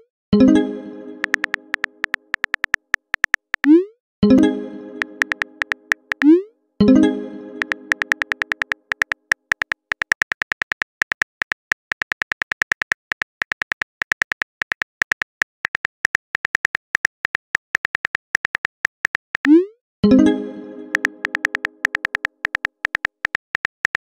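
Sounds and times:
phone keyboard typing clicks: 0:01.2 - 0:03.8, 0:05.0 - 0:06.4, 0:07.6 - 0:19.6, 0:20.9 - 0:24.0.

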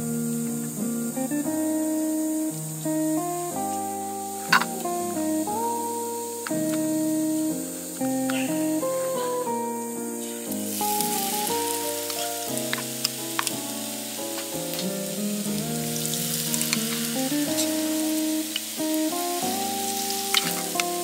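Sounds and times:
background music: 0:00.0 - 0:21.0
peppers deep-frying in oil: 0:10.3 - 0:21.0.

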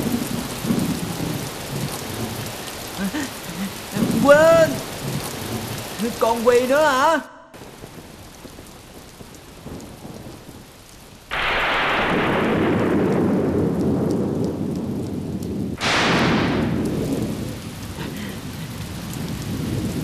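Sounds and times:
sharp thunder crack: 0:00.0 - 0:03.3, 0:11.3 - 0:20.0
thunder rumbling: 0:00.0 - 0:07.0, 0:07.6 - 0:20.0
heavy rain falling: 0:00.0 - 0:20.0.

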